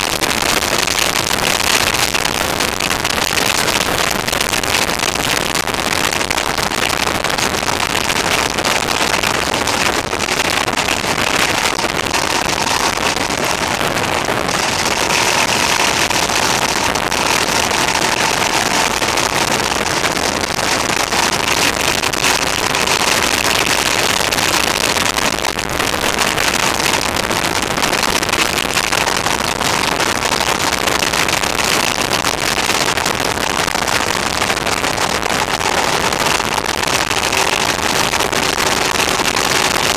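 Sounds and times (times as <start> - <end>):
wind rush on microphone: 0.0 - 39.9
motorcycle engine running: 6.7 - 29.1.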